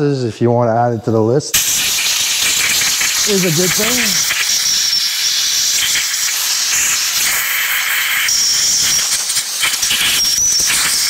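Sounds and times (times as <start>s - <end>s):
compressed air blow gun hissing: 1.6s - 11.0s.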